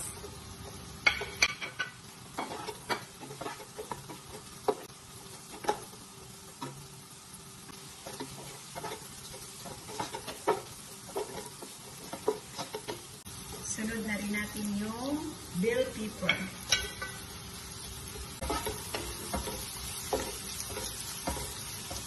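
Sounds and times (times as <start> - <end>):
soft sizzle: 0.0 - 22.0
spoon knocking and scraping pot: 0.2 - 4.9, 5.5 - 6.0, 8.0 - 13.1, 16.2 - 17.2, 18.4 - 22.0.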